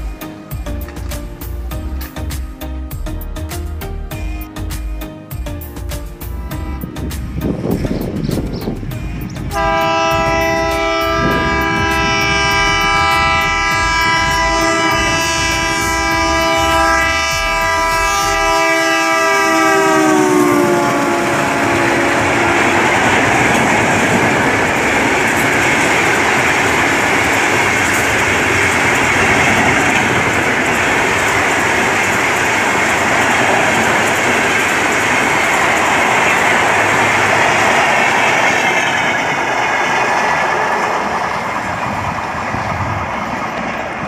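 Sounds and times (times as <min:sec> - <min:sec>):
train coaches rushing and clattering: 0:00.0 - 0:02.7, 0:04.2 - 0:44.0
locomotive horn blast: 0:08.9 - 0:23.5.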